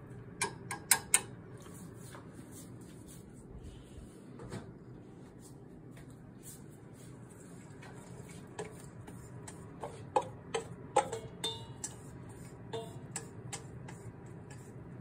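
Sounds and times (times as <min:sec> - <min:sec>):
utensils clinking on frying pan: 0:09.4 - 0:14.6.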